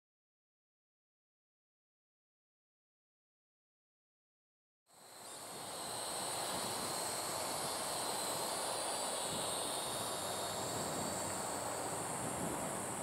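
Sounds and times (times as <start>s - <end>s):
drone propellers whining: 4.9s - 13.0s.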